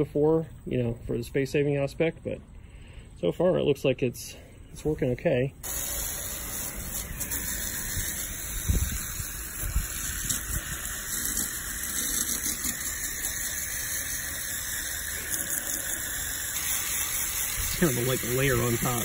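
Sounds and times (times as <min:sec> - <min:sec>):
hose water spraying on metal fins: 0:05.6 - 0:19.0.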